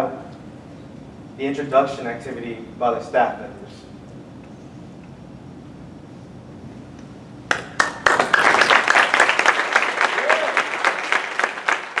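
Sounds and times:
audience applauding: 7.5 - 12.0.

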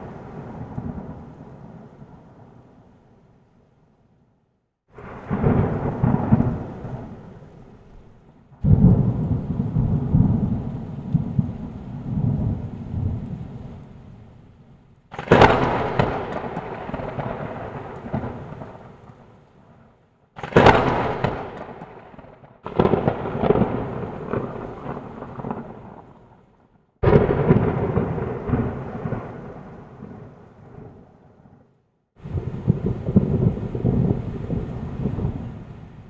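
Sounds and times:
thunder-like rumbling with crack: 0.0 - 2.6, 5.0 - 14.2, 15.1 - 36.0.

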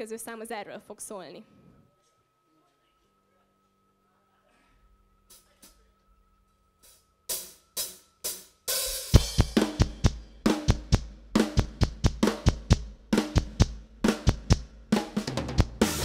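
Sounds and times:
drum count-in hits: 6.8 - 16.0
rock drum beat: 7.3 - 16.0.

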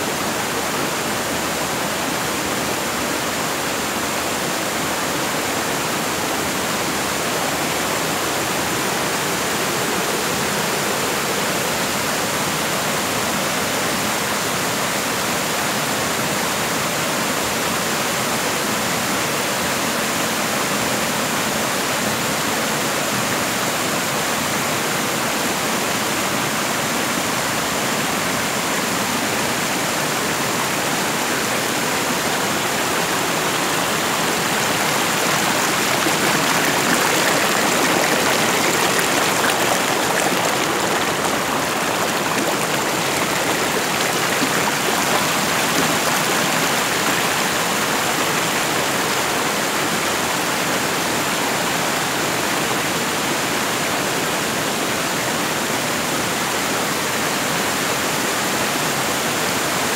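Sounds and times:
stream water rushing over rocks: 29.2 - 53.8.

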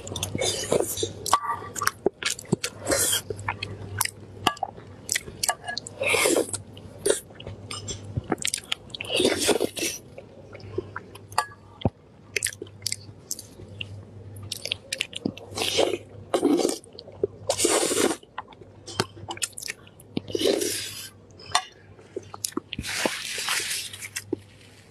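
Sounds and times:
slurping: 17.5 - 18.2.

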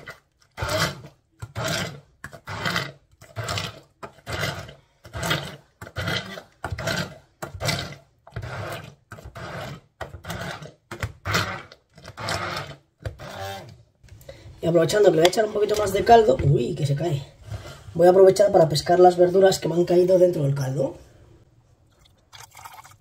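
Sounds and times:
electric blender pulsing: 0.0 - 13.8.

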